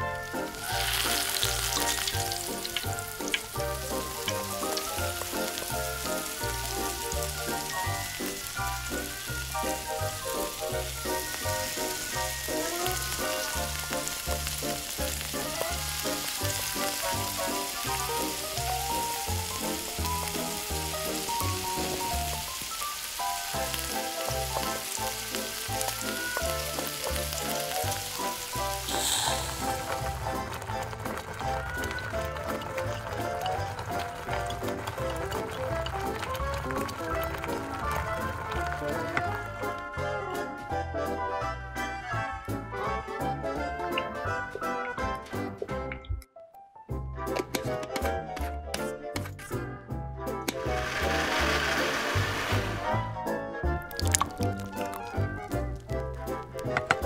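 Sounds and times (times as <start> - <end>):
background music: 0.0 - 57.0
vegetables sizzling in oil: 0.2 - 39.8, 50.6 - 53.2, 53.9 - 56.0
wooden spoon stirring in wok: 0.5 - 39.3.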